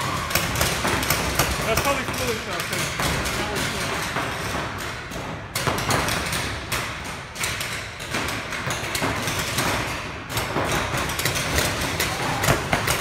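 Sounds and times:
paintball markers firing: 0:05.5 - 0:13.0.

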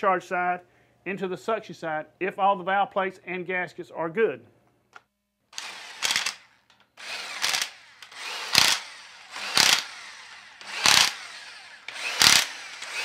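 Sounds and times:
electric impact wrench bursts: 0:05.6 - 0:13.0.

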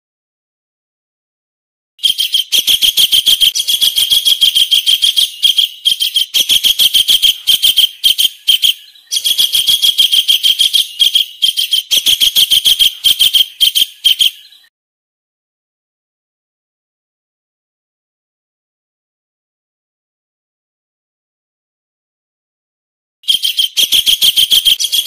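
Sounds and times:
kingfisher call: 0:02.0 - 0:14.6.

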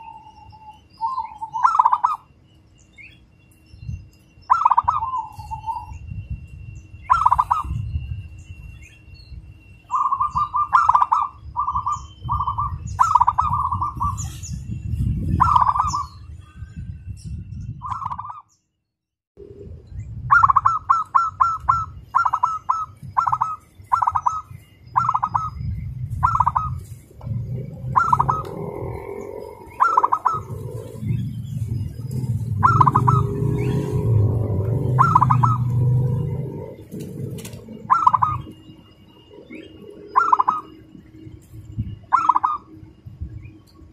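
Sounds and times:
dove cooing: 0:00.0 - 0:02.3, 0:04.5 - 0:05.9, 0:07.1 - 0:07.8, 0:09.9 - 0:14.4, 0:15.4 - 0:16.2, 0:20.3 - 0:41.2, 0:42.1 - 0:42.8.

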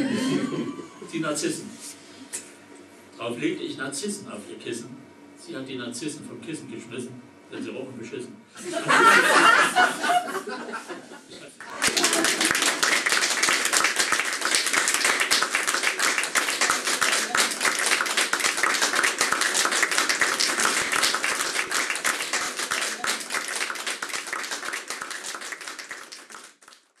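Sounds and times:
audience applauding: 0:11.6 - 0:27.0.

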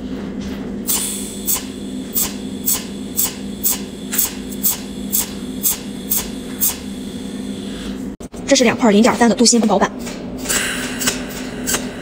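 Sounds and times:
steady low hum: 0:00.0 - 0:12.0
welding arc crackle: 0:01.0 - 0:07.2.

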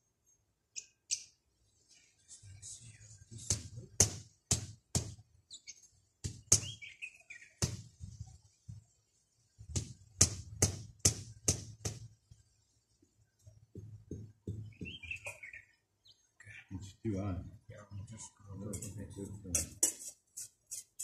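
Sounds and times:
bird chirping: 0:00.2 - 0:04.1, 0:05.0 - 0:08.8, 0:12.3 - 0:19.9.

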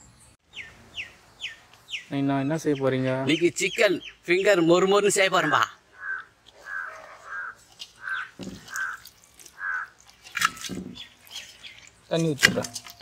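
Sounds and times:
crow cawing: 0:05.9 - 0:10.0.

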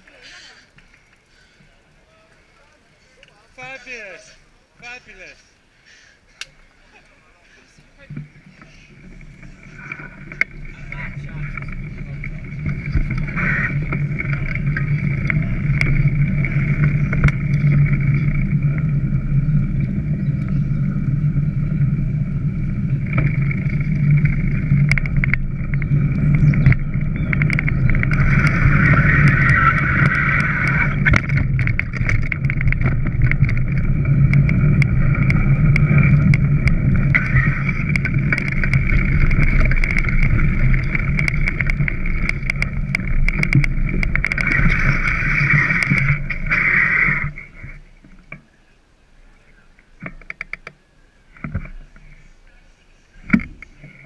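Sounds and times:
bicycle rumbling over rough ground: 0:00.0 - 0:54.0
wind on microphone: 0:08.9 - 0:47.8.

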